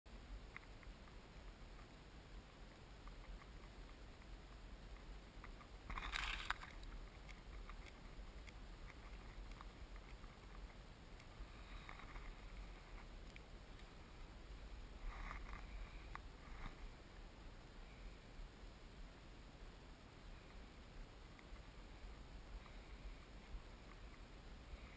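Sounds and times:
low steady rumble: 0.1 - 24.9
faint paper crinkling: 3.1 - 14.0.

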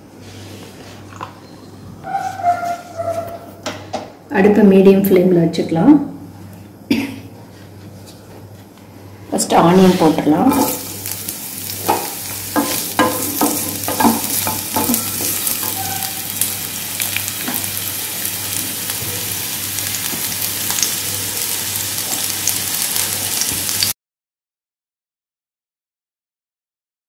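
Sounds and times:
onions sizzling in hot oil: 10.4 - 24.0
spatula clacking on pan: 11.8 - 15.9.

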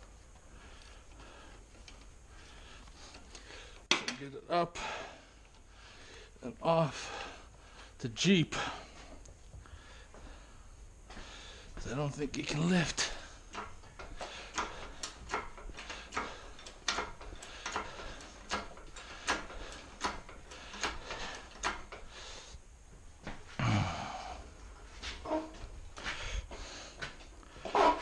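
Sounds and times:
hydraulic hoist pump clicking: 13.5 - 22.1.

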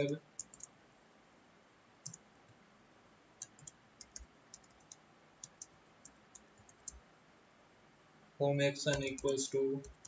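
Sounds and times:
computer keyboard typing: 0.0 - 0.7, 3.4 - 7.0, 8.9 - 10.0.

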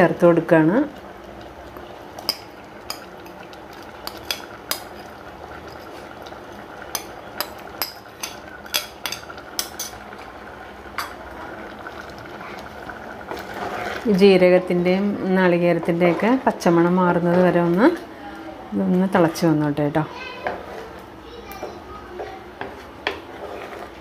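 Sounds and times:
spoon scraping a bowl: 22.6 - 24.0.

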